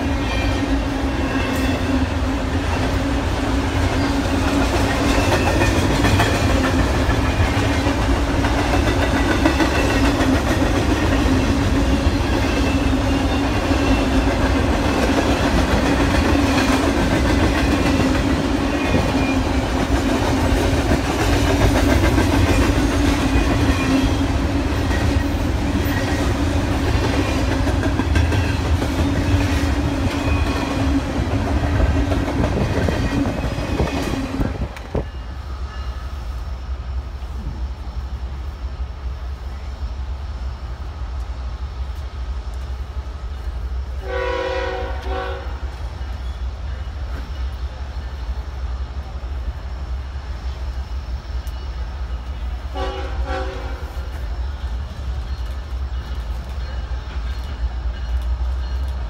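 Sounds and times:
train wheels on rails: 0.0 - 59.0
train horn: 44.0 - 45.8, 52.7 - 54.1.

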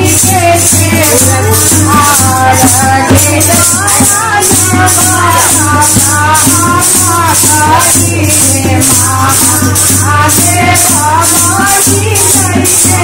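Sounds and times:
shaken rattle beat: 0.0 - 13.0
women singing folk song: 0.0 - 13.0.

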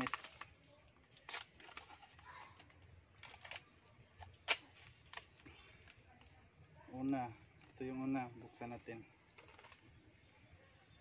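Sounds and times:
wrapping crinkling: 0.0 - 6.0, 9.4 - 9.8.

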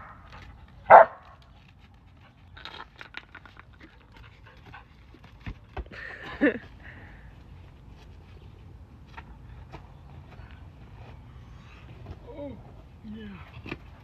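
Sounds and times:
dog barking: 0.9 - 1.2.

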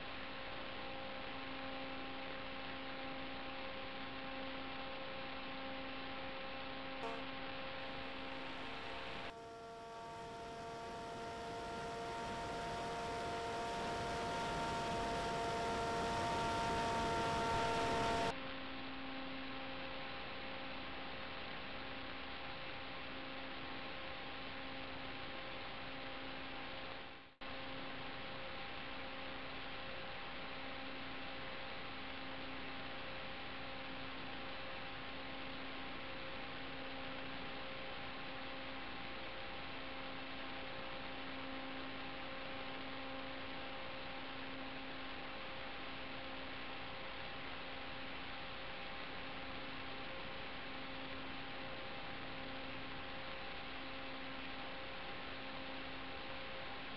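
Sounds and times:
electrical hiss and hum: 0.0 - 34.3
faint whine tones: 7.0 - 20.2.

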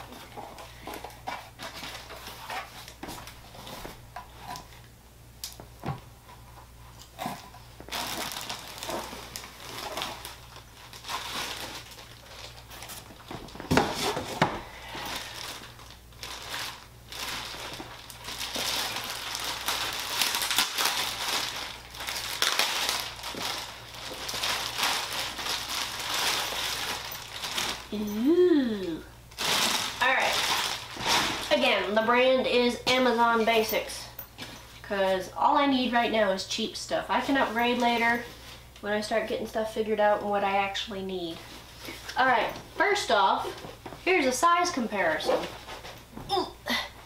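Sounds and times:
plastic wrapping crinkling: 0.0 - 4.8, 6.8 - 32.2.

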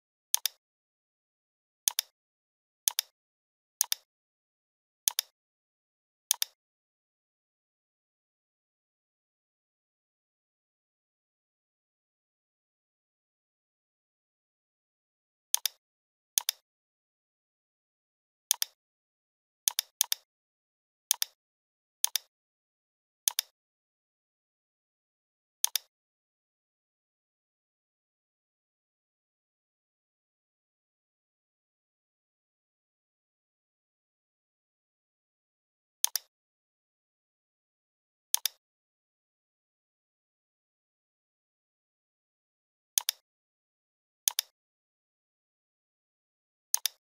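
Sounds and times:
computer mouse clicking: 0.3 - 0.6, 1.9 - 2.1, 2.9 - 3.1, 3.8 - 4.1, 5.1 - 5.3, 6.3 - 6.6, 15.6 - 15.8, 16.4 - 16.6, 18.5 - 18.8, 19.7 - 20.2, 21.1 - 21.4, 22.0 - 22.3, 23.3 - 23.5, 25.6 - 25.9, 36.0 - 36.3, 38.3 - 38.6, 43.0 - 43.2, 44.3 - 44.5, 46.7 - 47.0
computer mouse button clicking: 6.3 - 6.6, 36.0 - 36.3, 38.4 - 38.6, 43.0 - 43.2, 44.3 - 44.5, 46.8 - 47.0.

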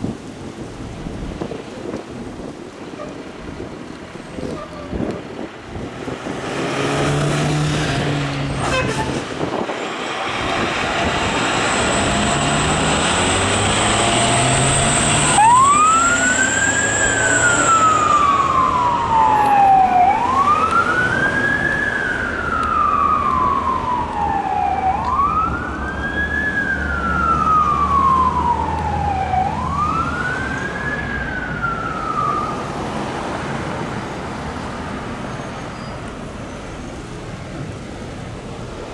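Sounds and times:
road noise: 0.0 - 38.9
truck engine: 1.8 - 38.9
fire engine siren wailing: 7.6 - 33.7.

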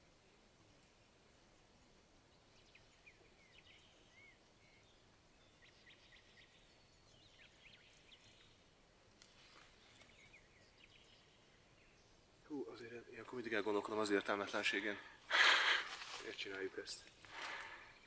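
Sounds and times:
small birds chirping: 0.0 - 18.0
faint click: 9.1 - 9.4.

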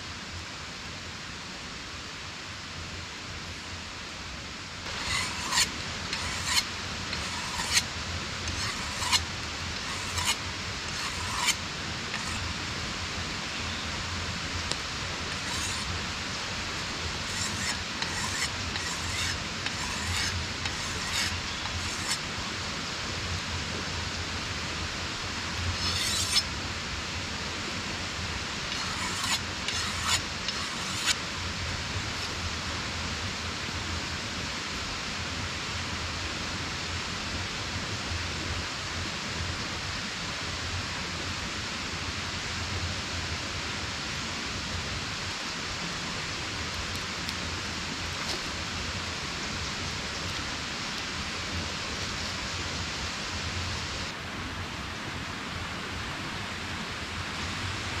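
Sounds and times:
hand tool rasping on wood: 4.9 - 7.8, 8.5 - 9.2, 9.8 - 12.4, 15.3 - 15.9, 17.3 - 22.2, 25.8 - 26.4, 28.7 - 31.2.

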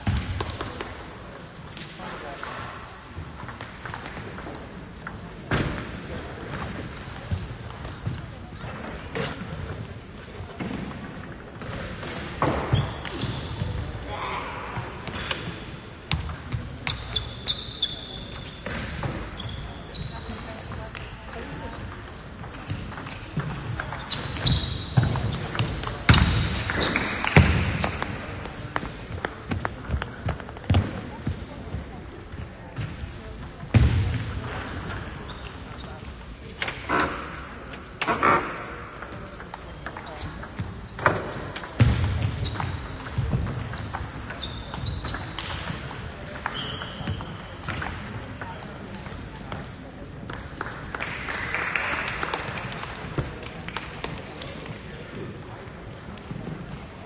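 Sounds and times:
shoe squeaks: 3.8 - 4.4, 12.0 - 13.8, 16.1 - 20.4, 22.2 - 23.3, 24.0 - 25.9, 35.3 - 36.0, 42.4 - 45.5, 46.3 - 48.4.

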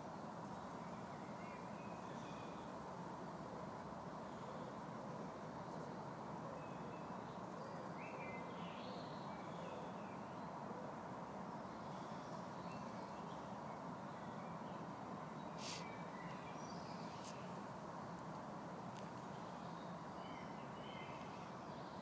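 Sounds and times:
steady background hiss: 0.0 - 22.0
faint bird chirps: 15.4 - 17.6.

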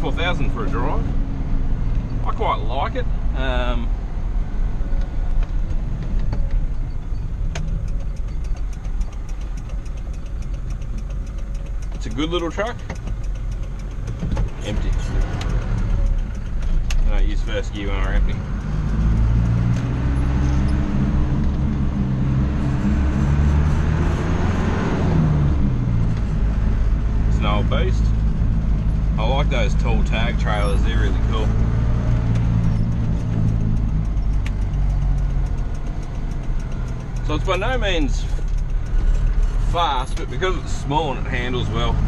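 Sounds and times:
truck engine and road noise: 0.0 - 42.0
regular light ticking: 7.6 - 17.0, 32.4 - 39.2.

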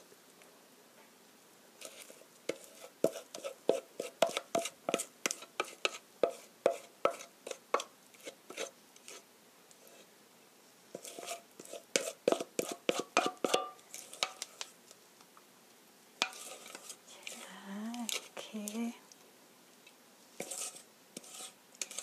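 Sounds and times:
spatula scraping steel bowl: 1.8 - 9.2, 10.9 - 14.7, 16.2 - 18.4, 20.4 - 22.0.

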